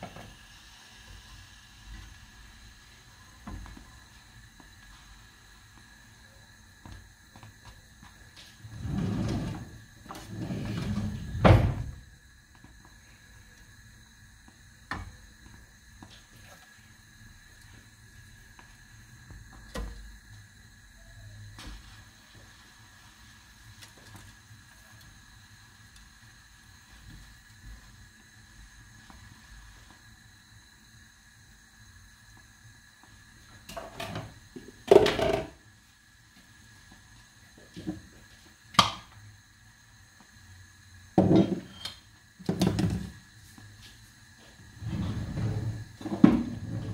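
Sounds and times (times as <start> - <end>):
low scraping sliding sound: 8.6 - 11.5, 44.8 - 45.8
kitchen knocking and clatter: 34.9 - 35.6, 41.2 - 41.7, 42.4 - 43.1.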